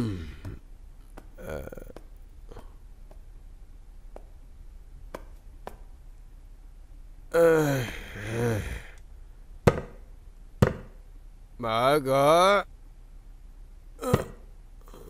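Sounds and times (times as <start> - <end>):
man groaning sigh: 0.0 - 0.6, 1.4 - 2.0, 7.3 - 9.0.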